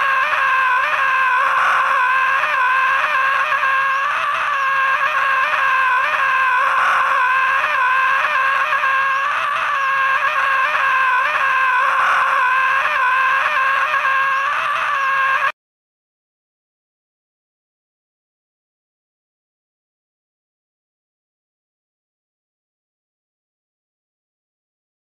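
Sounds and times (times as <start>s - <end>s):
cartoon character screaming: 0.0s - 15.6s.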